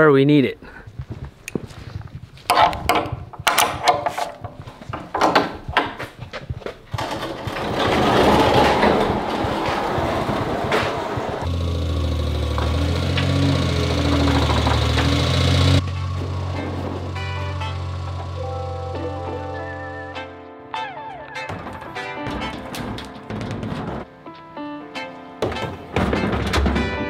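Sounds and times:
truck engine idling: 7.5 - 20.2.

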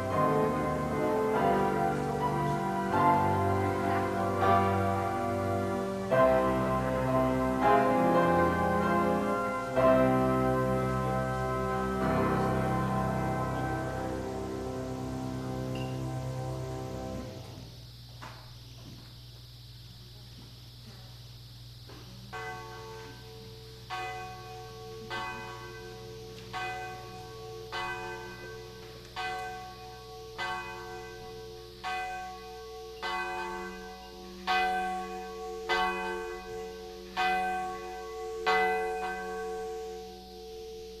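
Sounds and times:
church bell tolling: 0.0 - 17.7, 22.3 - 41.0.

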